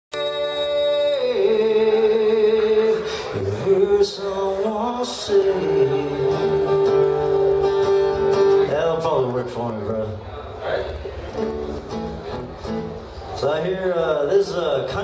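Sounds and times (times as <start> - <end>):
man singing: 0.1 - 7.9, 8.6 - 10.2, 13.4 - 15.0
acoustic guitar: 0.1 - 15.0.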